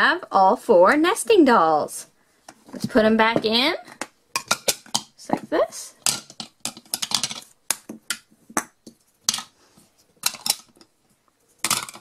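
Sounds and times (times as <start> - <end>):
plastic shells clicking together: 4.0 - 5.2, 6.0 - 9.5, 10.2 - 10.9, 11.6 - 12.0.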